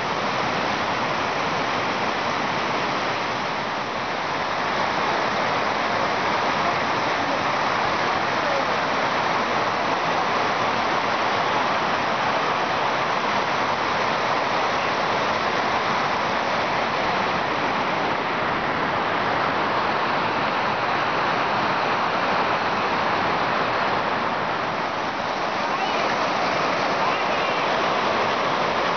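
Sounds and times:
running mountain water: 0.0s - 28.9s.

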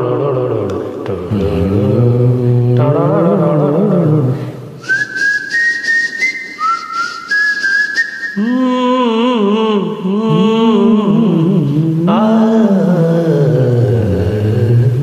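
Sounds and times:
man singing wordless line: 0.0s - 4.8s, 8.4s - 15.0s
whistled melody: 4.8s - 8.4s.

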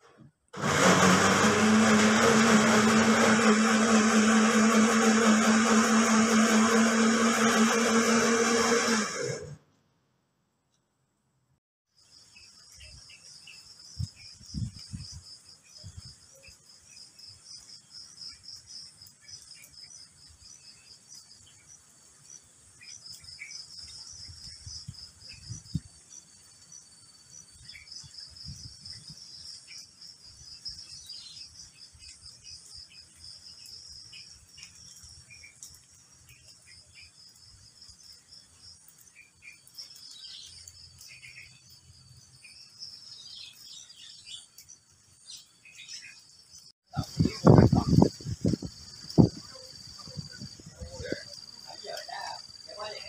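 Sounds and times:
insects trilling: 12.0s - 53.0s.

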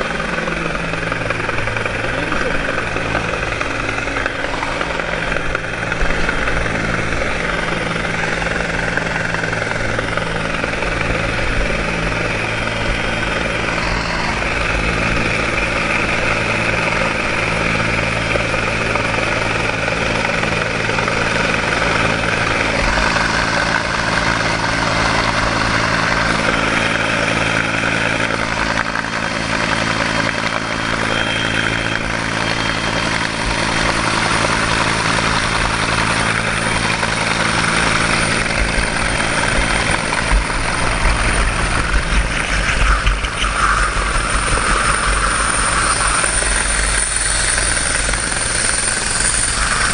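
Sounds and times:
helicopter hovering overhead: 0.0s - 49.9s
rotor wash blowing on microphone: 29.4s - 49.9s.

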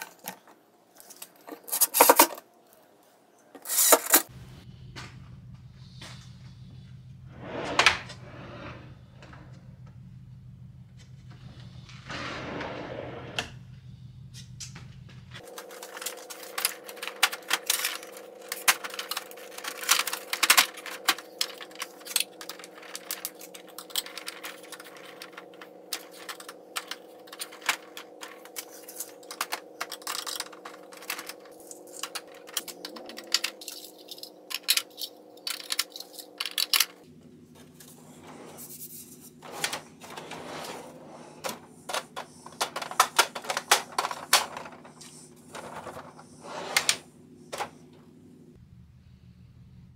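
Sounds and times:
plastic bins clicking and clattering: 0.0s - 2.5s, 3.6s - 4.3s, 15.4s - 48.1s.

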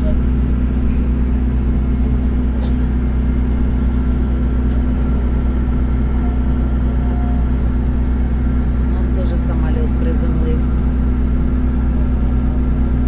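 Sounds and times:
faint steady whine: 0.0s - 13.0s
jet airliner rumble in cabin: 0.0s - 13.0s.

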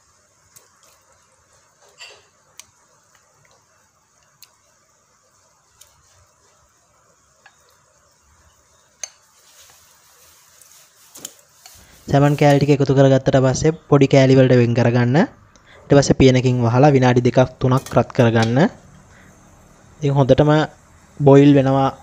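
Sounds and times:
faint steady hiss: 0.0s - 22.0s
utensil tapping on plate and pan: 9.0s - 9.3s.

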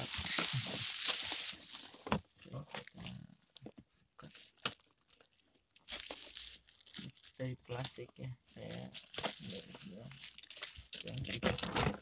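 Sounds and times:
bubble wrap crinkling: 0.0s - 2.2s, 4.2s - 7.5s, 8.6s - 12.0s.

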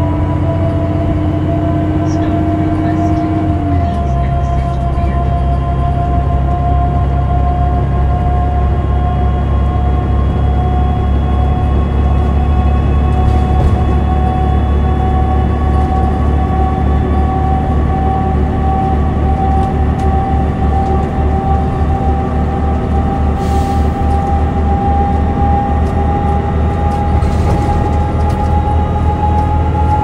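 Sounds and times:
bus diesel engine drone: 0.0s - 30.0s
transmission whine: 0.0s - 30.0s.

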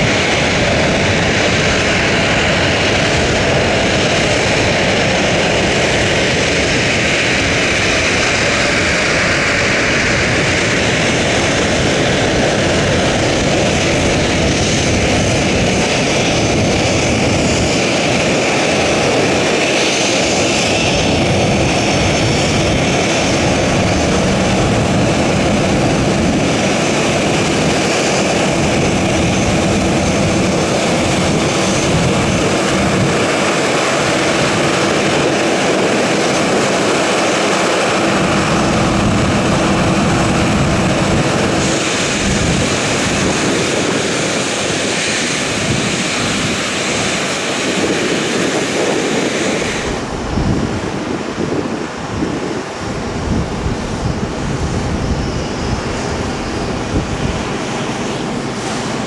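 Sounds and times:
jet engines running: 0.0s - 59.0s.

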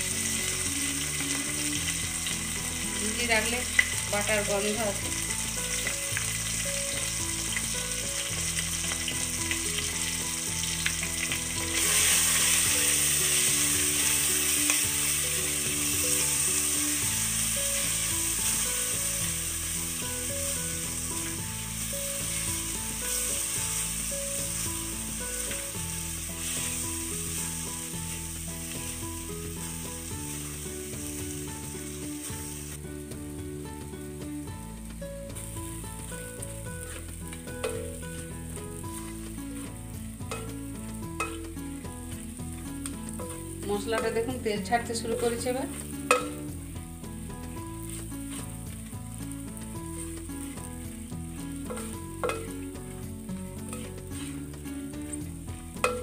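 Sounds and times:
spice paste sizzling in oil: 0.0s - 56.0s
spatula stirring and scraping: 35.4s - 41.5s, 47.3s - 56.0s.

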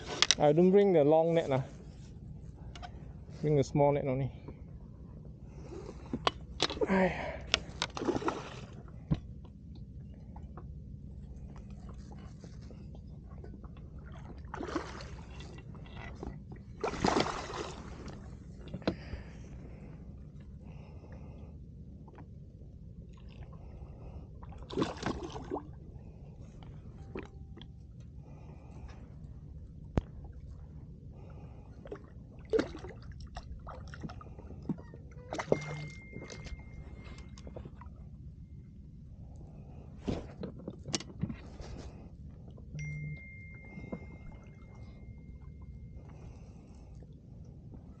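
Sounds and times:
low rumble: 0.0s - 48.0s
water splashing beside a boat: 5.5s - 9.3s, 11.4s - 20.0s, 23.1s - 27.6s, 29.9s - 38.0s
fish thrashing water splashing: 16.8s - 18.1s.

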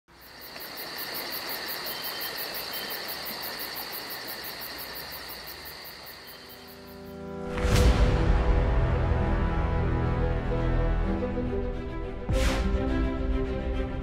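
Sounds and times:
insect pulsing chirp: 0.1s - 7.3s
insects trilling: 0.1s - 7.3s.

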